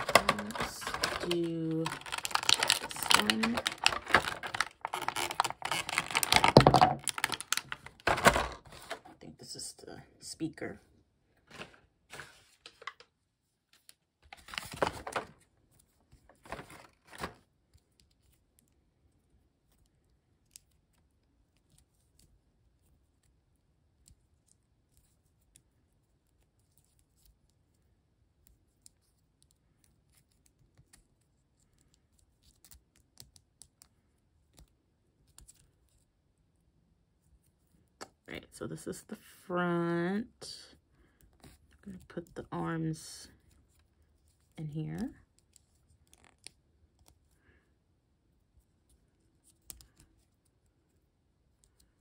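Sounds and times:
handling knocks and rustles: 0.0 - 9.1.

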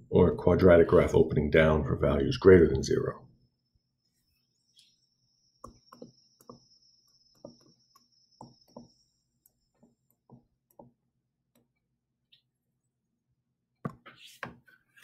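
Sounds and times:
stylus tapping tablet screen: 5.6 - 12.5, 13.8 - 15.0.

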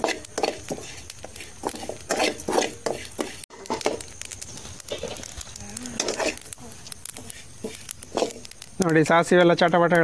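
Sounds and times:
spatula scraping steel pan: 0.0 - 3.8, 6.0 - 6.5, 7.3 - 8.5
seeds popping in hot oil: 0.0 - 10.0.

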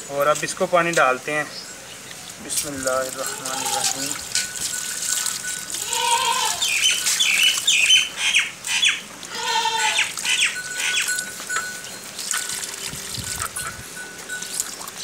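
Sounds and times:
birds chirping: 1.2 - 15.0
water poured onto soil: 2.3 - 9.4, 10.0 - 15.0.

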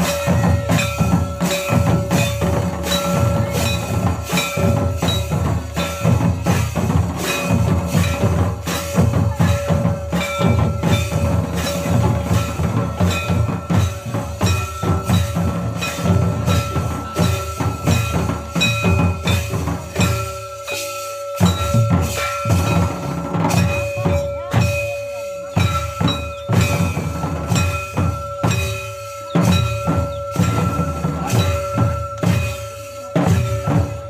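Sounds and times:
hand drums beating fast rhythm: 0.0 - 34.0
held ringing tone: 0.0 - 34.0.

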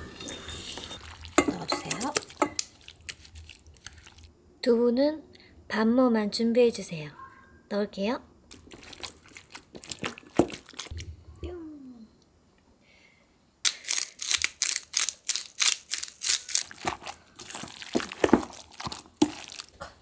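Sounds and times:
spoon mashing tofu in steel bowl: 0.4 - 4.2, 16.8 - 19.7
pepper mill grinding: 13.7 - 19.7.

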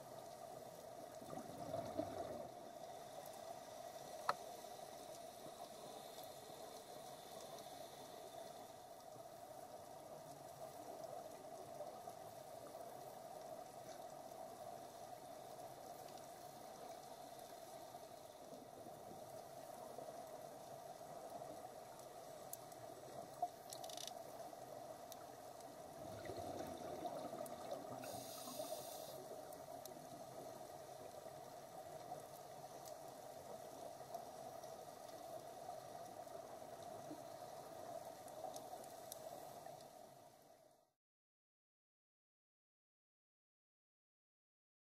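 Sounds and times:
underwater hum: 0.0 - 40.7
bubbling exhaled air: 26.0 - 29.1.

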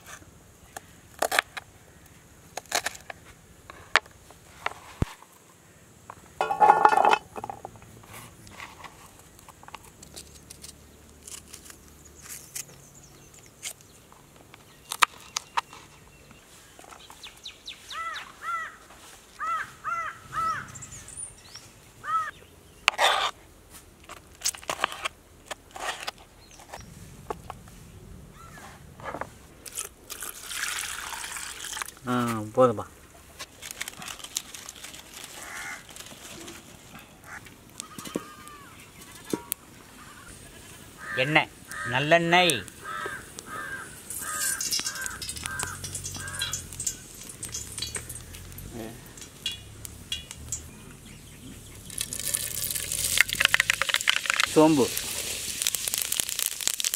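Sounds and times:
crow cawing: 18.0 - 20.8, 22.0 - 22.4, 35.4 - 35.9, 37.2 - 38.8, 40.0 - 40.4, 41.0 - 42.1, 42.8 - 47.0
water pouring into steel bowl: 30.1 - 32.0, 44.1 - 50.7, 51.8 - 56.9.

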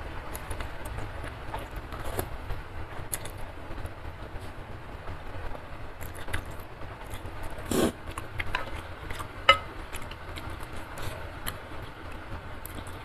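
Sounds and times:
wet chewing: 6.0 - 13.0
slurping noodles: 7.6 - 8.0.

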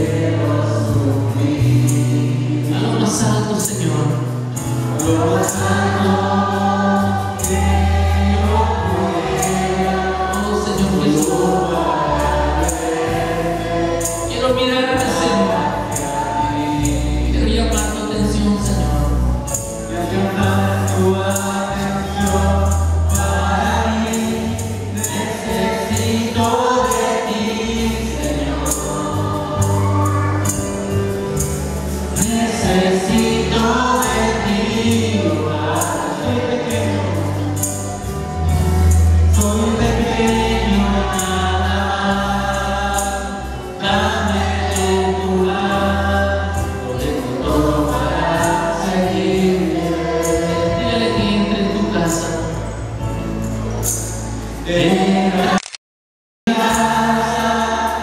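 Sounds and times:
light percussion: 0.0 - 55.0
bass line: 0.0 - 55.6
voices singing a hymn: 0.0 - 55.6, 56.5 - 58.0.

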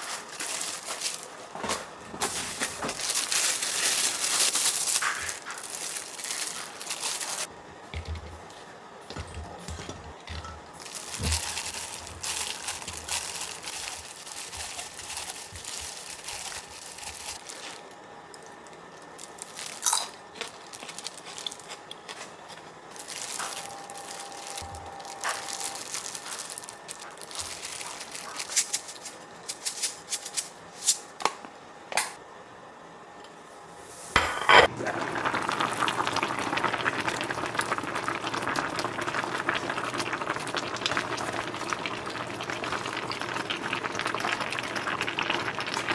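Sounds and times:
plastic glove crinkling: 0.0 - 7.5, 10.8 - 31.1
stew bubbling at a boil: 34.6 - 45.9.

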